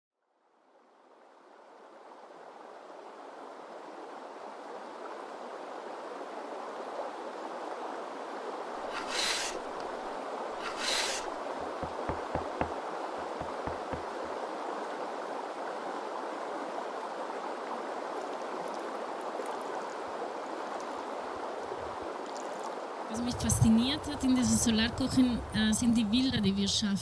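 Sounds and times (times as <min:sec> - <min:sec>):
rushing river water: 0:00.6 - 0:26.5
short hissing bursts: 0:08.9 - 0:10.0, 0:10.6 - 0:12.7
knife chopping on wooden board: 0:11.8 - 0:14.1.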